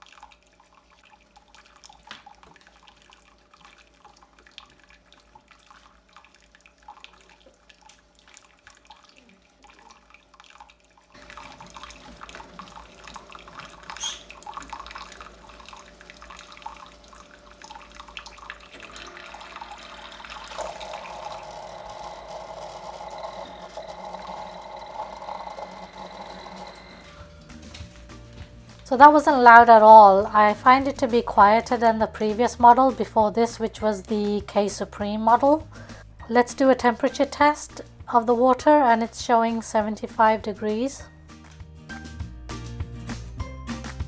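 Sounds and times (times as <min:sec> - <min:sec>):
water trickling into a jug: 0:00.0 - 0:27.5
coffee maker running: 0:11.2 - 0:27.5.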